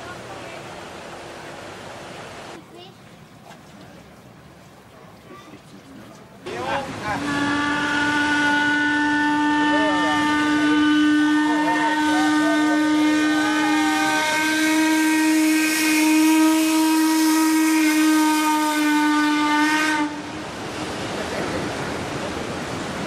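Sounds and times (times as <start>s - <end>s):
paddle wheels rushing wash: 0.0s - 23.0s
steam whistle blast: 7.2s - 20.2s.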